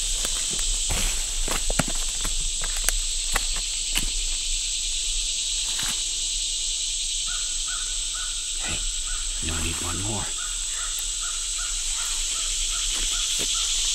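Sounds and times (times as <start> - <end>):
footsteps in dry leaves: 0.0 - 4.4, 10.7 - 13.9
insects droning: 0.0 - 13.9
bird calling: 7.3 - 13.9.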